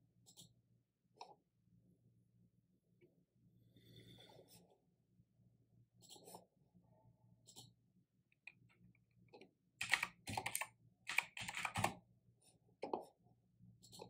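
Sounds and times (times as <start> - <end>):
typing on a keyboard: 9.8 - 12.0.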